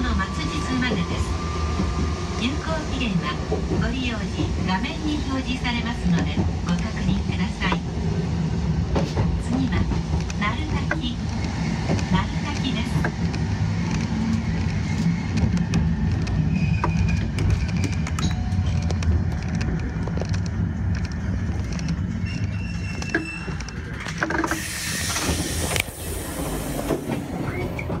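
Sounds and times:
tram running on track: 0.0 - 28.0
wheels clicking on rails: 8.9 - 28.0
hiss: 24.5 - 27.1.

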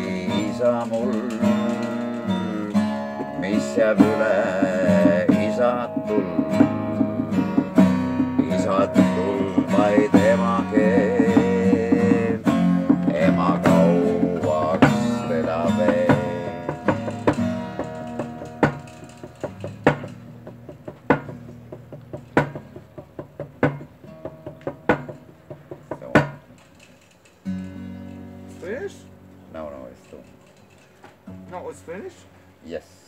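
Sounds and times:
man singing: 0.0 - 19.2
acoustic guitar strumming: 0.0 - 32.6.

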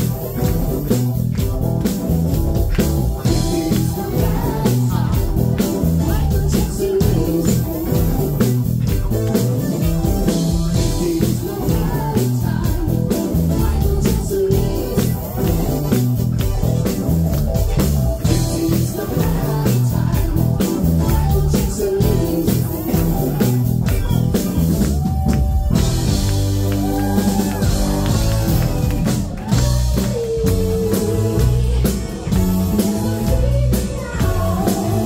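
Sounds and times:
drums keeping a steady beat: 0.0 - 35.0
live pop-rock band: 0.0 - 35.0
singer on microphone: 3.2 - 8.5, 9.4 - 16.9, 18.2 - 24.6, 28.7 - 35.0.

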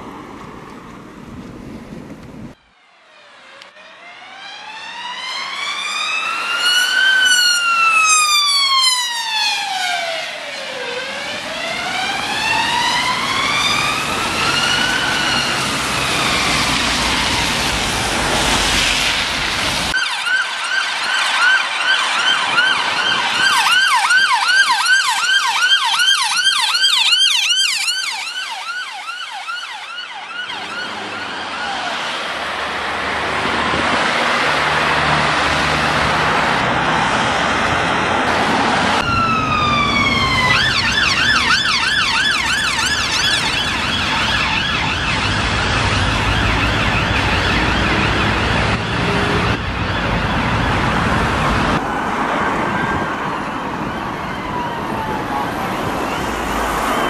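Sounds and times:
passing road traffic: 0.0 - 57.0
siren slow wail: 2.5 - 57.0
siren fast yelp: 3.1 - 17.6, 20.0 - 32.2, 39.0 - 51.0, 51.6 - 57.0.

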